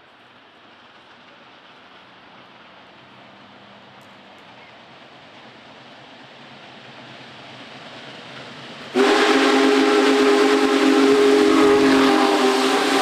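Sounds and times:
approaching train rush: 0.0s - 13.0s
hiss of steam: 0.0s - 13.0s
steam whistle chord: 9.0s - 13.0s.

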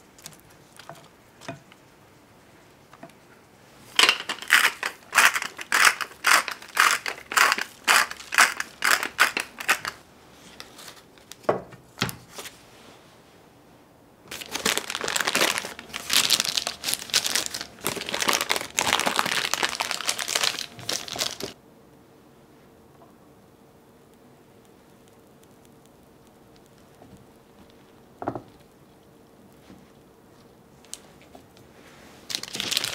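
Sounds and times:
baking parchment crinkling: 3.9s - 11.5s, 14.3s - 21.6s, 24.6s - 32.9s
lettuce salad crunching: 4.0s - 10.0s, 14.3s - 21.6s.

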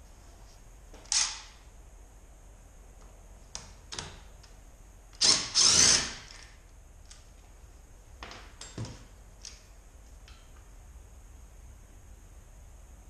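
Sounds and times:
cordless drill whining: 5.2s - 6.4s.

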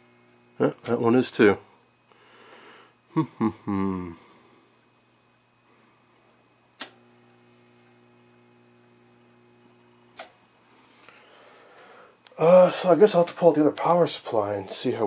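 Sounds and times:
power supply hum: 0.0s - 15.0s
switch clicking: 6.8s - 7.0s, 10.1s - 10.4s.

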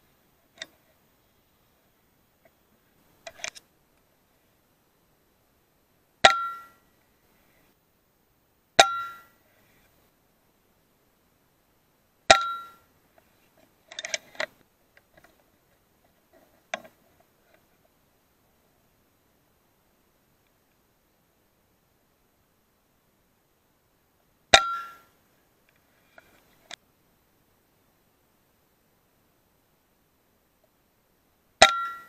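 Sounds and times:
air rifle shots with metallic ring: 6.2s - 6.8s, 8.8s - 9.4s, 12.3s - 12.8s, 24.5s - 25.1s, 31.6s - 32.0s.

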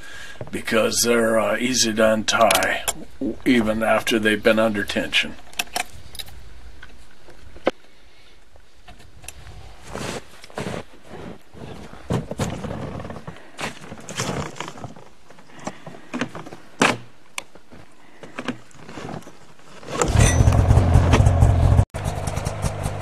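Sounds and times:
snowmobile engine running: 20.0s - 23.0s.

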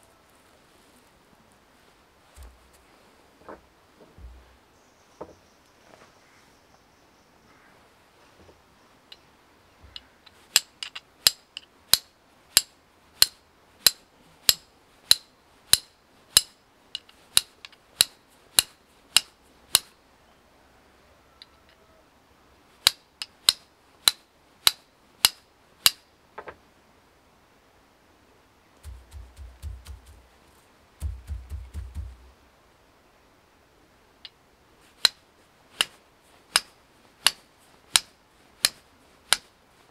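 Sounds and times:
steel striker clinking on flint: 10.5s - 19.9s, 35.8s - 39.5s.

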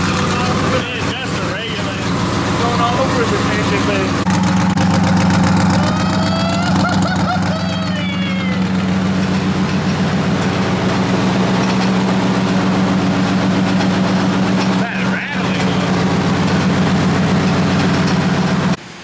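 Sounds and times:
truck engine idling: 0.0s - 18.8s.

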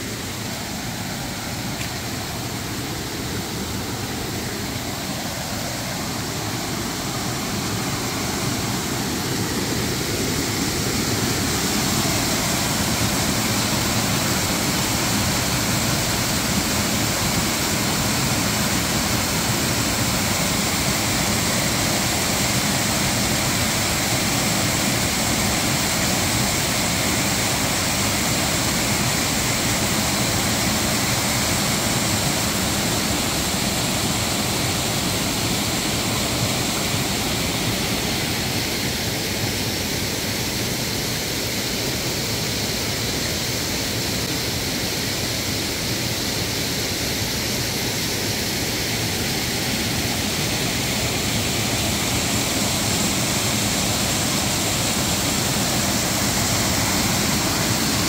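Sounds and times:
creek water rushing over rock: 0.0s - 58.0s.

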